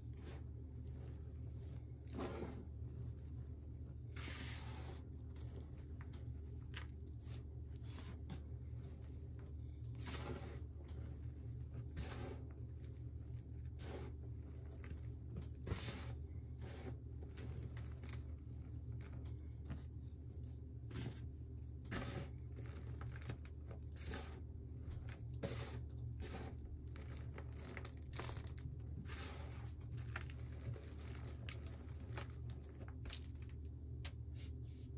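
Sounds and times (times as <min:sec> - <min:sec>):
chalk powder crunching: 0:21.9 - 0:33.6.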